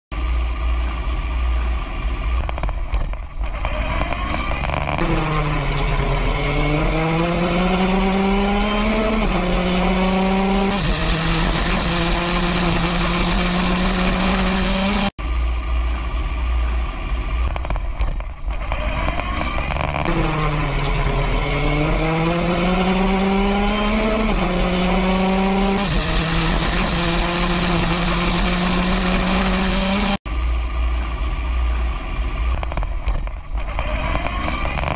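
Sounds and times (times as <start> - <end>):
race car engine accelerating: 1.6 - 30.2, 31.1 - 34.9
heavy low rumble: 15.2 - 22.5, 30.3 - 34.9.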